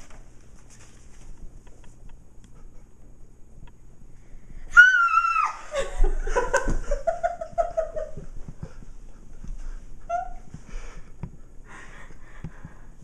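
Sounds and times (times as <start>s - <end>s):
girl screaming: 4.7s - 5.8s
girl squealing and laughing: 4.7s - 6.2s, 10.1s - 10.5s.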